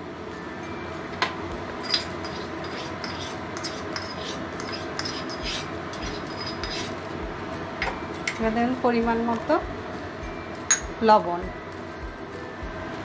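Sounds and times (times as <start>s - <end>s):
metal spoon clinking on steel bowl: 1.8s - 7.0s, 7.8s - 8.6s, 10.7s - 10.9s
spoon scraping bowl: 1.9s - 7.1s.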